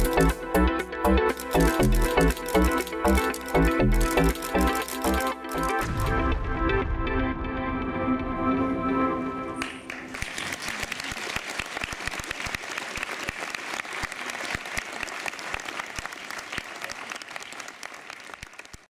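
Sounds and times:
audience applause: 9.6 - 18.9.

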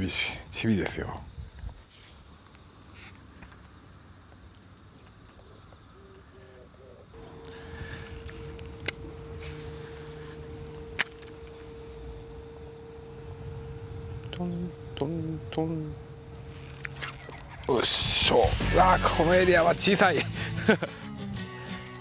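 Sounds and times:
insects chirping: 0.0 - 22.0
low hum: 7.2 - 20.7.

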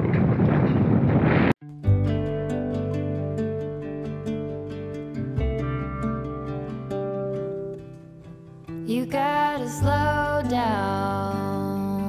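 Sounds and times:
wind rushing on microphone: 0.0 - 1.6
guitar music: 1.6 - 12.0.

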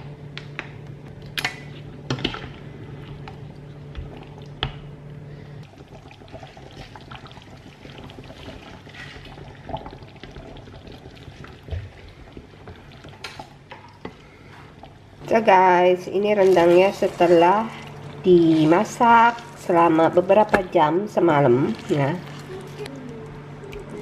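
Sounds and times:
thick sauce sloshing: 16.1 - 24.0.

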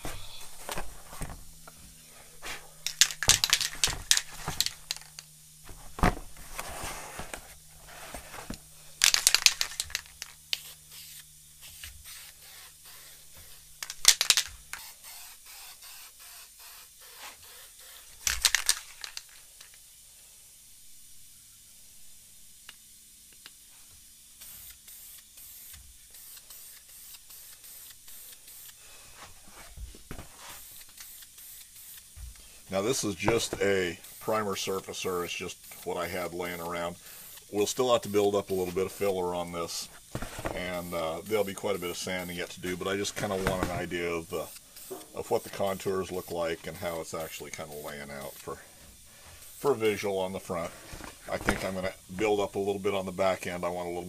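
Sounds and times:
aerosol can shaken: 2.4 - 6.0, 9.0 - 19.7, 24.4 - 28.8, 29.6 - 48.6
spray can hissing: 2.4 - 6.0, 8.1 - 19.8, 23.4 - 52.1
cardboard crinkling: 3.2 - 10.2, 38.7 - 40.8.

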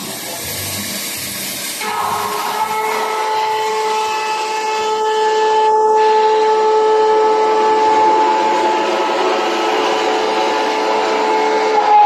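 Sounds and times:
constant hiss: 0.0 - 2.7
machine whine: 0.0 - 12.0.

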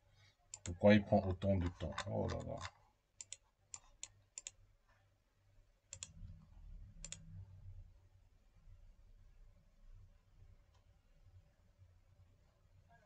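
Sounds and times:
computer mouse clicking: 0.5 - 0.8, 1.8 - 4.6, 5.9 - 6.4, 7.0 - 7.4.

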